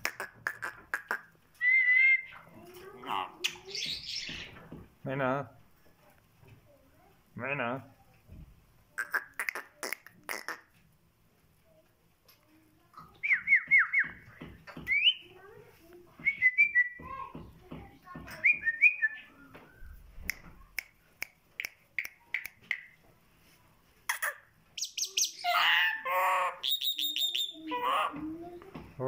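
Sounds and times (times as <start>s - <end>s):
myna whistling: 1.6s - 2.4s, 26.6s - 27.6s
myna speech-like babbling: 3.0s - 3.6s.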